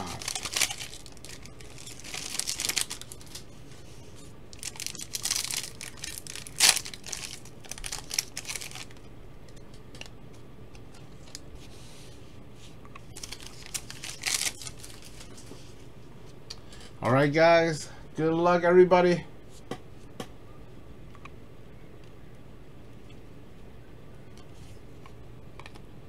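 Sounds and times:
foil packs tearing and crinkling: 0.0 - 3.5, 4.5 - 9.0, 13.2 - 15.4.

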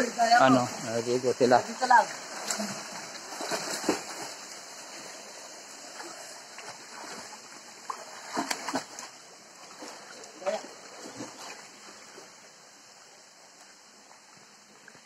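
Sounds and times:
flowing water rushing: 0.0 - 15.0
people splashing water: 1.9 - 4.4, 5.9 - 11.6.

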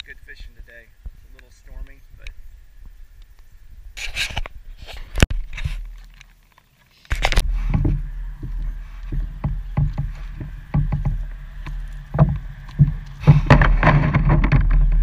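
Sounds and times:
steady low rumble: 7.4 - 15.0
knocks on boat hull: 7.6 - 15.0.

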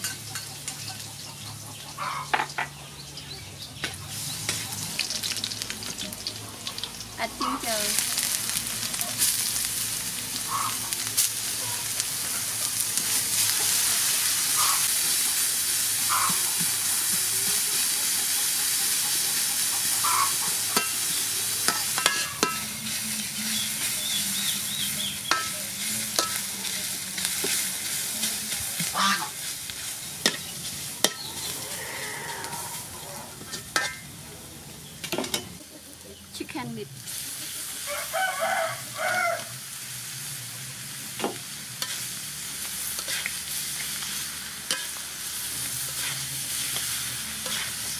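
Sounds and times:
ginger and garlic sizzling in oil: 0.0 - 47.9
metal spatula scraping wok: 7.4 - 34.1, 40.0 - 47.9.

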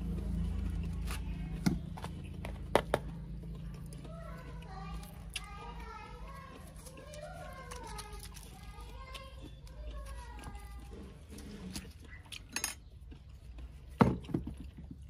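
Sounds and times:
people talking: 3.0 - 11.5.

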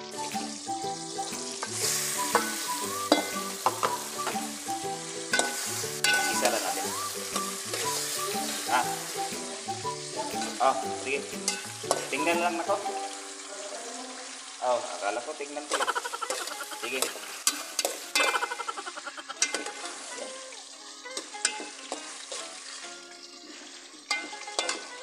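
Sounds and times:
chicken sizzling in hot oil: 0.0 - 25.0
metal ladle scraping a pot: 3.1 - 3.3, 5.3 - 6.8.

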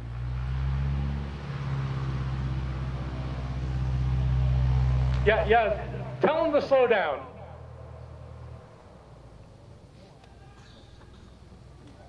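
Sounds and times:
small plane engine and propeller: 0.0 - 6.3.

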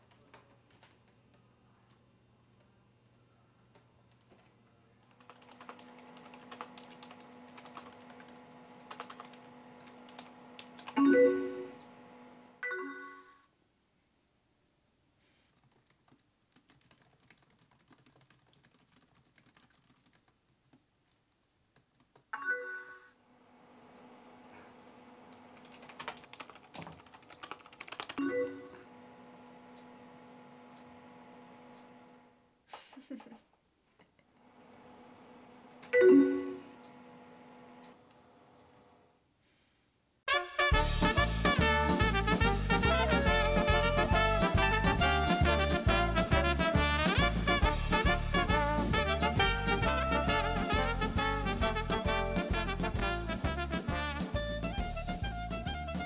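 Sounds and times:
typing on computer keyboard: 5.1 - 11.0, 15.5 - 22.3, 25.6 - 28.3
instant-messenger alert chimes: 11.0 - 11.8, 12.6 - 13.5, 28.2 - 28.9, 36.0 - 36.8.

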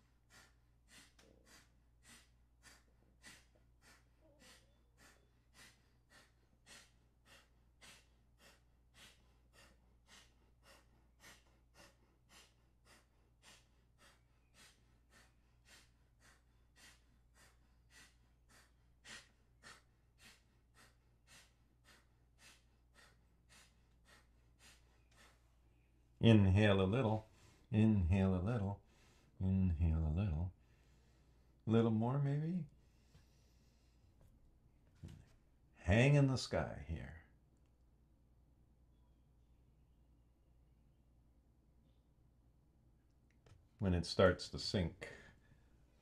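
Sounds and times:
forceful nasal exhales: 0.0 - 25.4.

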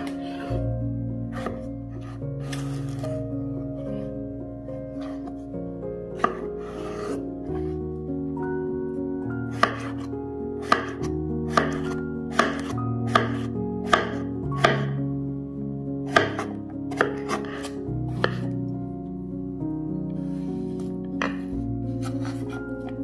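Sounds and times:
background music with held notes: 0.0 - 23.0
knife slicing cucumber on wooden board: 10.6 - 14.9, 16.1 - 18.4.

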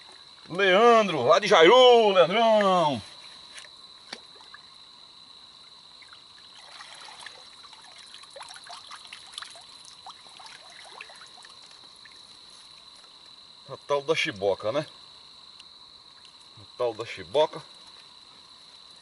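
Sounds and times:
insect drone: 0.0 - 19.0
creek water trickling and splashing: 3.5 - 4.8, 5.6 - 13.7, 16.0 - 19.0.

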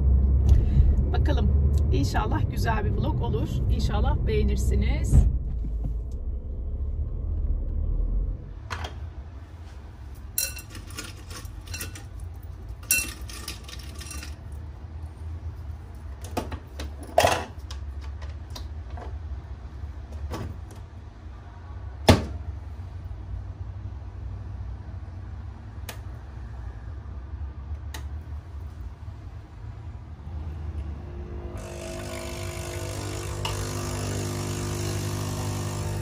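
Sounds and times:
road rumble inside car: 0.0 - 9.4.

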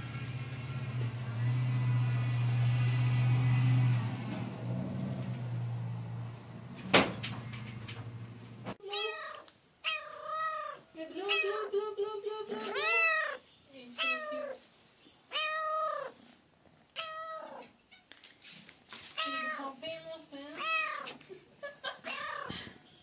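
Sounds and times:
cat meowing: 8.8 - 11.7, 12.6 - 13.4, 14.0 - 14.6, 15.3 - 16.2, 16.9 - 18.0, 19.2 - 19.7, 20.5 - 21.2, 22.0 - 22.6.

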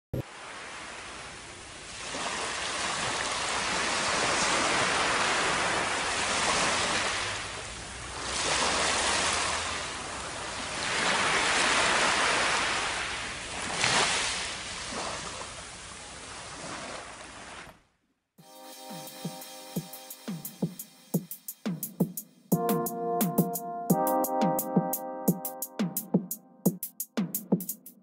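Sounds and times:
surf washing up beach: 0.2 - 17.6
wave splash: 0.2 - 17.7.

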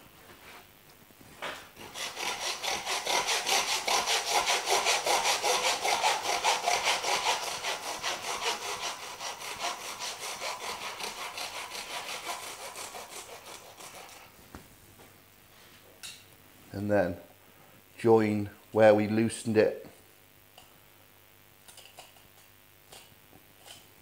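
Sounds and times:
hand saw cutting bone: 1.8 - 14.3.

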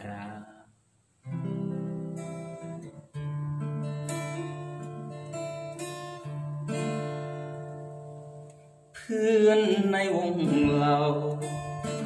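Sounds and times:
acoustic guitar strumming chords: 1.2 - 12.0.

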